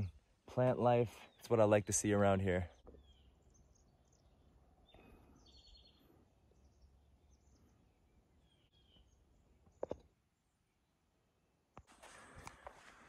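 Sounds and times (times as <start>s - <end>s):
distant bird chirps: 1.1s - 11.1s.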